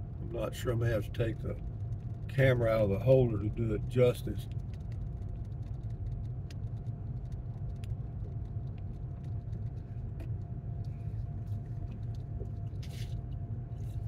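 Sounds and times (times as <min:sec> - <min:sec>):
faint steady whine: 0:00.0 - 0:14.0
vehicle rumble from inside cab: 0:00.0 - 0:14.0
interior rattles ticking: 0:01.0 - 0:10.6.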